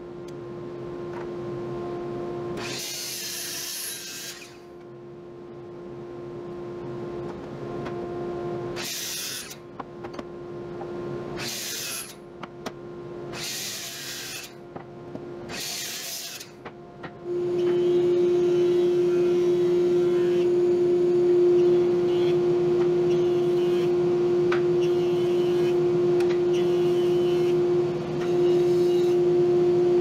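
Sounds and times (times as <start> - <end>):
electric router cutting wood: 17.3 - 30.0.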